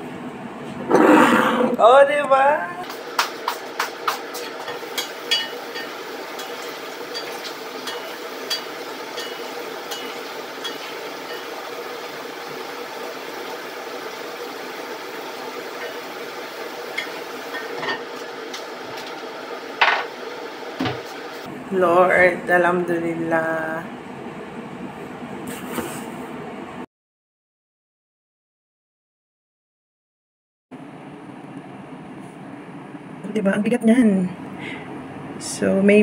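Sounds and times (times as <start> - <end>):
potatoes sizzling in a pot: 2.8 - 21.5
pot lid and utensil clinks: 4.3 - 11.6.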